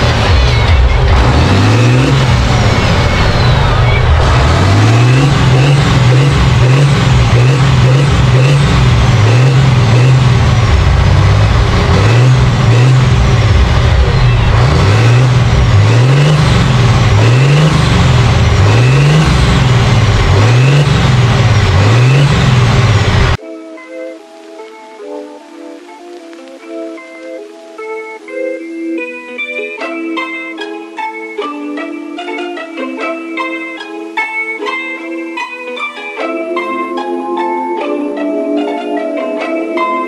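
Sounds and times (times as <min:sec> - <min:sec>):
diesel tractor engine revving: 0:00.0 - 0:23.4.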